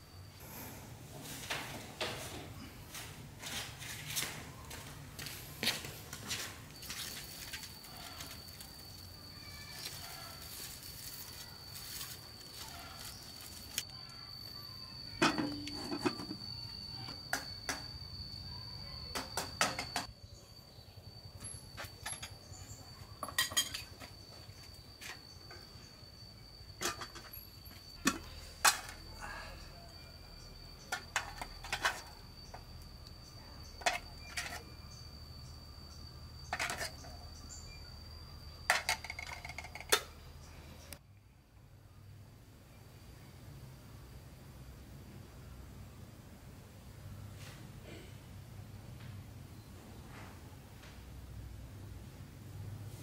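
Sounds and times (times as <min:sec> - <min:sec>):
high-pitched insect drone: 0:04.7 - 0:41.0
kitchenware clinking: 0:15.1 - 0:17.9, 0:23.2 - 0:24.2, 0:26.8 - 0:29.1, 0:30.9 - 0:32.7, 0:36.4 - 0:37.2.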